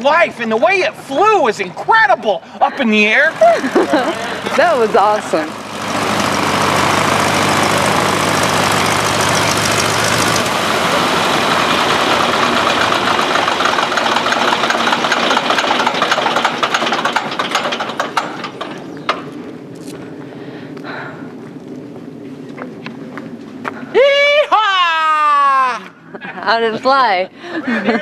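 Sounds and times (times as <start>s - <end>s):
radial engine idling and stopping: 2.6s - 19.4s.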